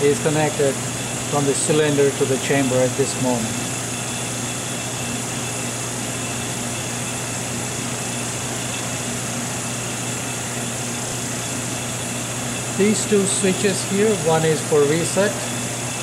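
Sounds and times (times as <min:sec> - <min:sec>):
oven machine hum and hiss: 0:00.0 - 0:16.0.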